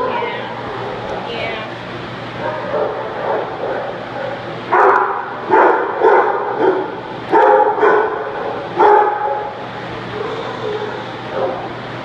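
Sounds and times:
dog barking: 2.4s - 11.7s.

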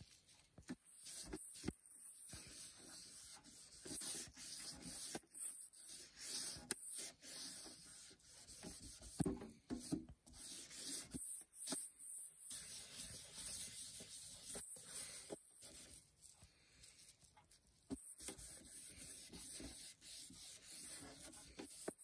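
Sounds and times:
wipe rubbing on plastic cover: 9.8s - 17.1s, 17.8s - 22.0s.

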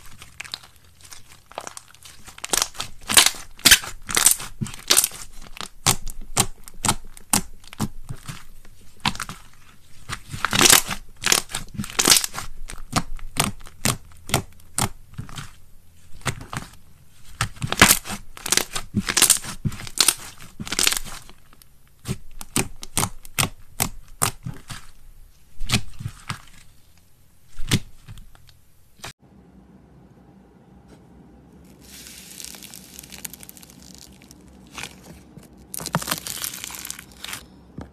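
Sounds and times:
slime crackling and popping: 0.0s - 24.9s, 31.7s - 37.5s.

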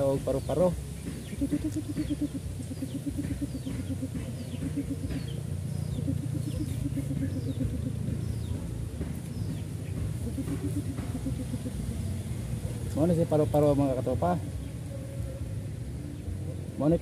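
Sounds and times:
faint high bird chirps: 0.1s - 8.6s
small engine pulsing: 0.8s - 12.9s.

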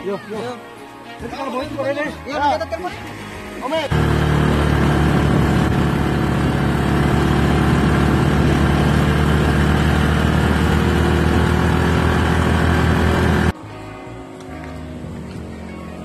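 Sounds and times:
small motorcycle engine running: 3.9s - 13.5s.

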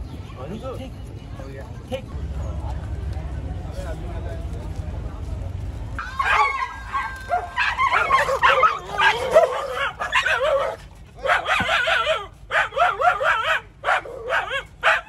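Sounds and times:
dogs whining and yipping: 6.0s - 15.0s.

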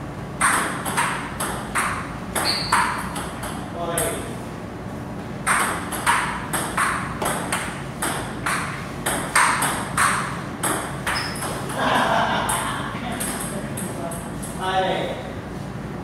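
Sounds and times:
table tennis ball clicking: 5.5s - 11.6s.

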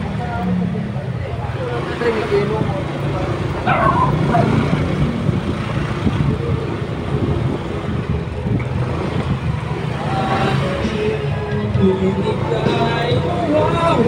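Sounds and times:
motorcycle engine hum: 0.0s - 14.0s
road noise: 0.0s - 14.0s
wind noise: 3.6s - 10.6s.

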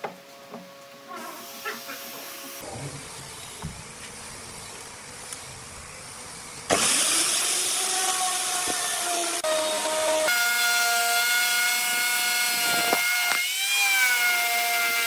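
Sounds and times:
electric router cutting wood: 6.7s - 15.0s.

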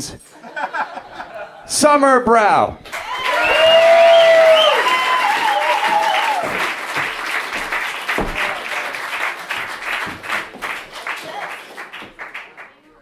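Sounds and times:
audience applauding: 2.8s - 12.9s
audience whooping: 2.9s - 7.0s.

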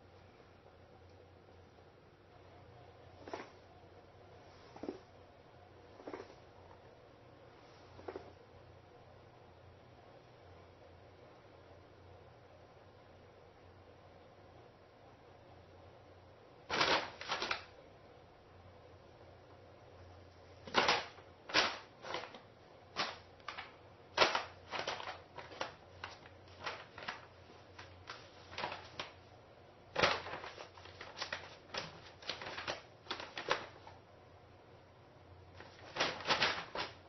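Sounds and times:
paper bag crackling and rustling: 3.2s - 3.6s, 16.7s - 17.7s, 20.6s - 29.3s, 29.9s - 34.0s, 35.6s - 37.0s.

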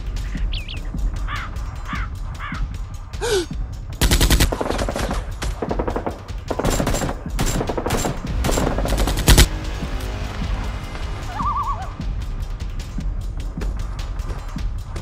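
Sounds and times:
automatic gunfire bursts: 4.0s - 9.5s.

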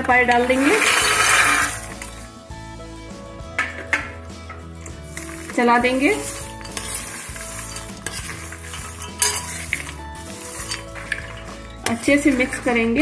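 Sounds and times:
spoon stirring in syrup: 4.8s - 12.9s
spoon clinking against bowl: 7.7s - 10.0s.

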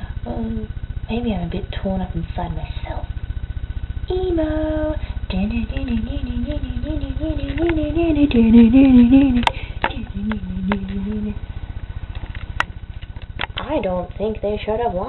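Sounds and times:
steady low hum: 0.0s - 15.0s
woman singing wordlessly: 4.1s - 11.4s.

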